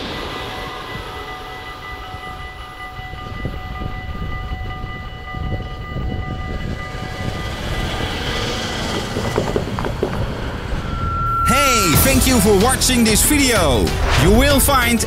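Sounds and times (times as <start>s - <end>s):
level crossing bells ringing: 0.0s - 10.0s, 10.7s - 14.0s
low rumble: 10.7s - 15.0s.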